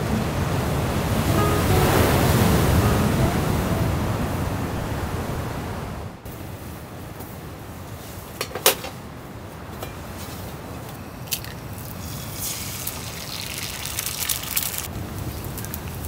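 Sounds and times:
frying pan sizzling: 0:11.4 - 0:16.0.

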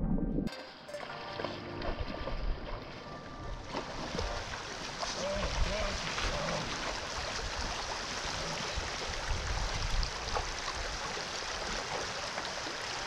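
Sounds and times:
river rushing over gravel: 0:04.2 - 0:13.0.

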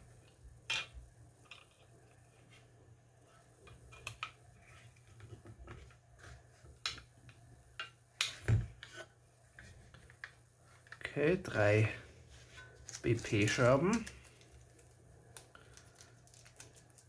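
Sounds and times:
plastic parts clicking and rubbing: 0:12.6 - 0:17.0.

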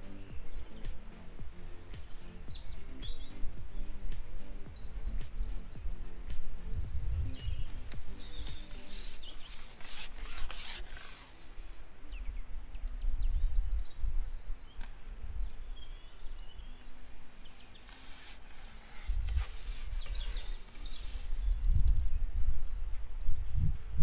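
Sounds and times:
short bird chirps: 0:00.0 - 0:12.3, 0:16.5 - 0:22.1
loud rustling or rubbing: 0:07.6 - 0:11.8, 0:17.2 - 0:21.5.

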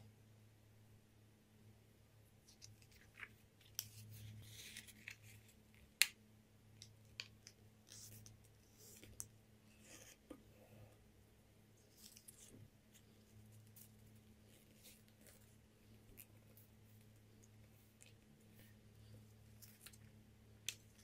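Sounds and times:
low steady hum: 0:00.0 - 0:21.0
paper crinkling and rustling: 0:02.5 - 0:05.6.

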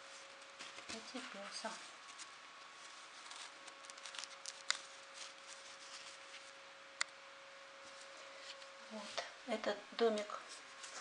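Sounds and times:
hands rustling felt pieces: 0:00.0 - 0:06.6.

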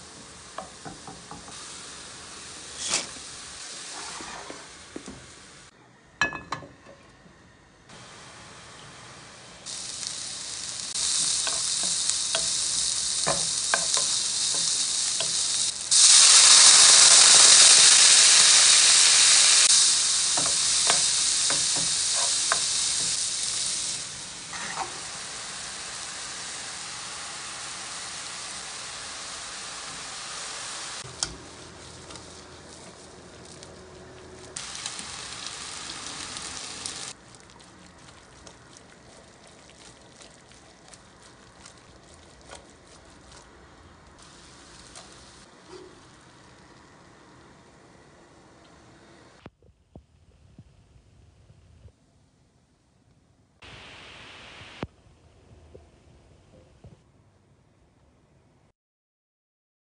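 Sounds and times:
meat sizzling in frying pan: 0:00.0 - 0:05.4, 0:09.6 - 0:37.2, 0:44.2 - 0:45.5
stirring taps and scrapes: 0:37.4 - 0:43.6.

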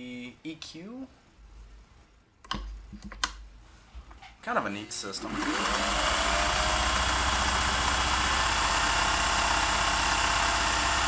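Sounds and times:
motor whine: 0:04.9 - 0:11.0
sewing machine stitching: 0:05.2 - 0:11.0.

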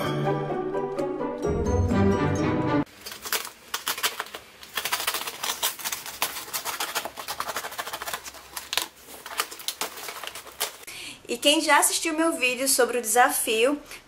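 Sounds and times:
utility knife cutting cardboard: 0:03.8 - 0:08.8.

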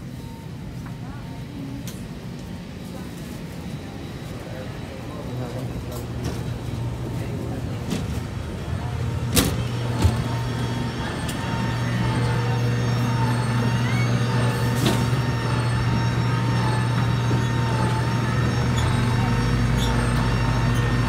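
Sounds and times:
low engine drone: 0:03.8 - 0:21.0
wavering high whine: 0:09.6 - 0:21.0.

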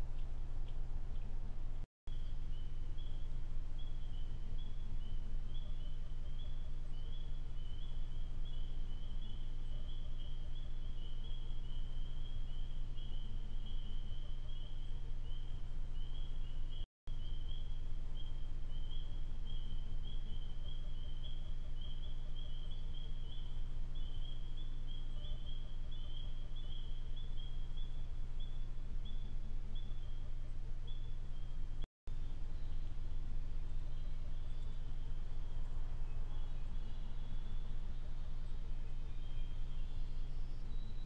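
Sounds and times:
low constant rumble: 0:00.0 - 0:41.0
high trilling insect chorus: 0:02.1 - 0:29.2
night animals calling: 0:02.1 - 0:31.6.

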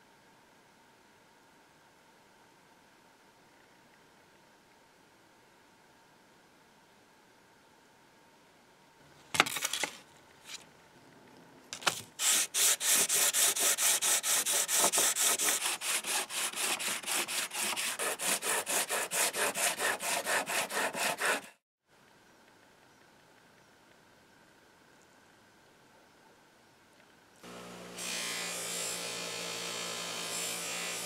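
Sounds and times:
metal scraping on sandpaper: 0:12.2 - 0:21.6.

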